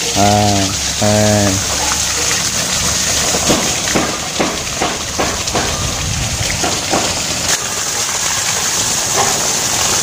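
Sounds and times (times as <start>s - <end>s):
hose water spraying on grass: 0.0s - 10.0s.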